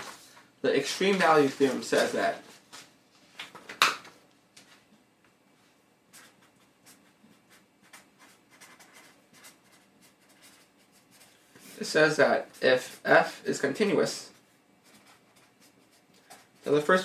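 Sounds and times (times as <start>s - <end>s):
marker scratching on paper: 6.1s - 13.3s, 14.0s - 17.0s.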